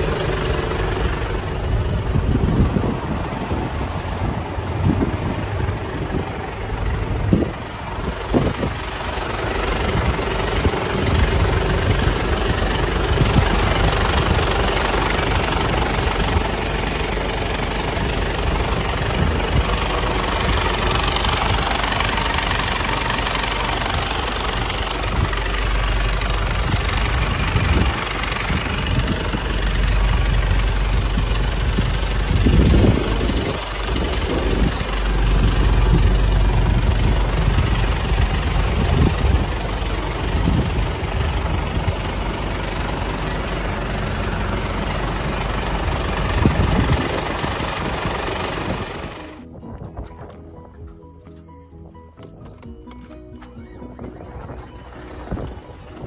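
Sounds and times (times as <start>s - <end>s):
diesel truck engine idling: 0.0s - 56.0s.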